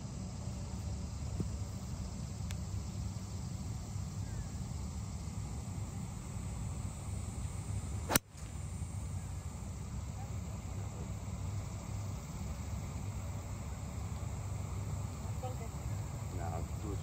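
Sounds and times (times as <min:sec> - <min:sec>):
golf club striking ball: 0:08.0 - 0:08.5.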